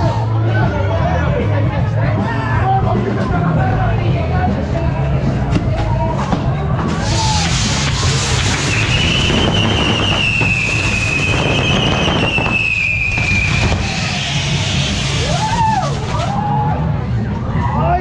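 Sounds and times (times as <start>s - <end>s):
fireworks hissing and crackling: 6.9s - 16.4s
firework whistle: 7.0s - 16.3s.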